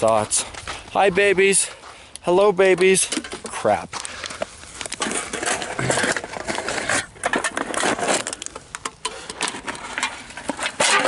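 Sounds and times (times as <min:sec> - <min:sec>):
rustling against microphone: 0:00.0 - 0:11.0.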